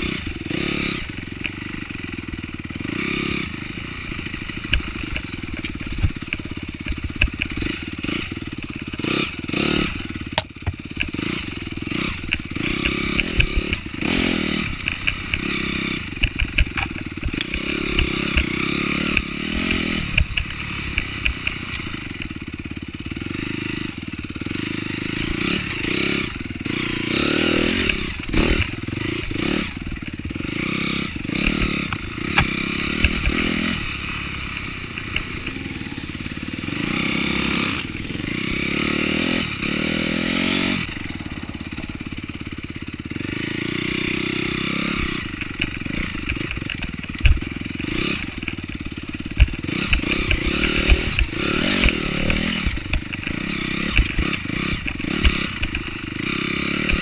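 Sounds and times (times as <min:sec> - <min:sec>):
dirt bike engine revving: 0:00.0 - 0:57.0
bike knocking and clattering: 0:04.6 - 0:14.2, 0:14.8 - 0:23.3, 0:31.2 - 0:33.6, 0:45.4 - 0:57.0.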